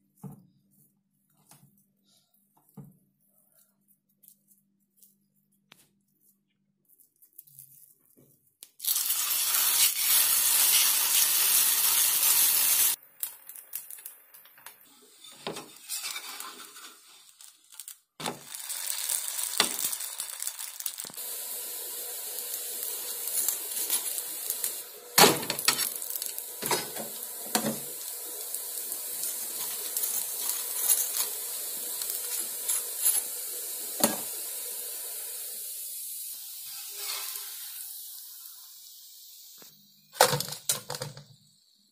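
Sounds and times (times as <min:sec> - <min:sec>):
flatbread sizzling on hot pan: 0:08.8 - 0:40.2
loud hiss: 0:21.1 - 0:40.1.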